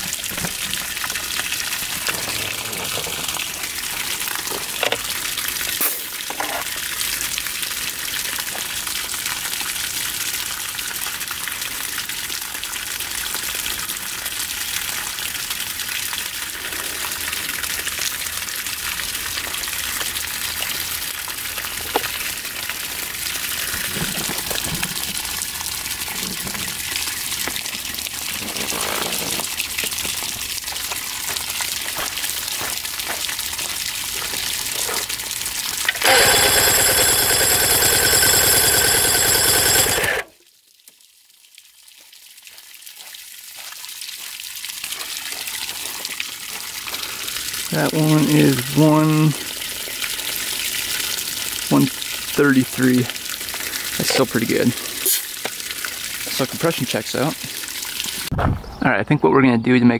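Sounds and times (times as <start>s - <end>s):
water running: 0.0s - 7.3s, 13.1s - 40.3s, 44.9s - 58.3s.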